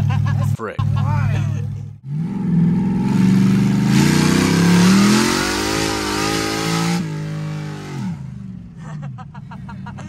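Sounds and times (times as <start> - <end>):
car engine revving hard: 2.0 - 8.6.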